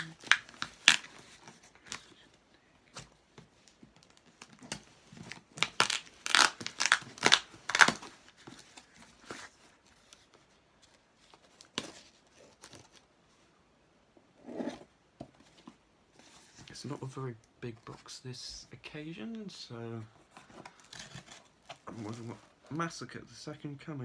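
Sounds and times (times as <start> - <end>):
cardboard box tape ripping: 0.0 - 2.0, 4.6 - 8.4
rustling of paper and card: 0.0 - 13.5, 19.1 - 23.0.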